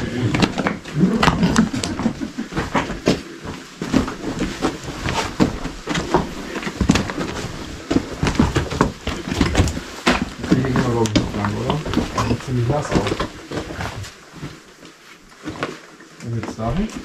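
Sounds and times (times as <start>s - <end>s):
footsteps crunching on rock rubble: 0.0s - 17.0s
stones clattering underfoot: 0.1s - 14.7s.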